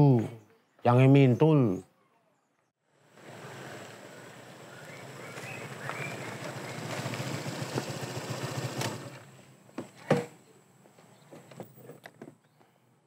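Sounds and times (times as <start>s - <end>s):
motor scooter engine running: 3.1s - 9.5s.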